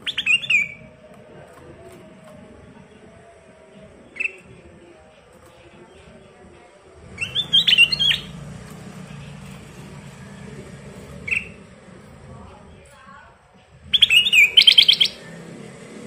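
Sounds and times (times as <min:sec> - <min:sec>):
bird whistling song: 0:00.0 - 0:00.9, 0:04.0 - 0:04.6, 0:07.2 - 0:08.4, 0:11.2 - 0:11.6, 0:13.9 - 0:15.4.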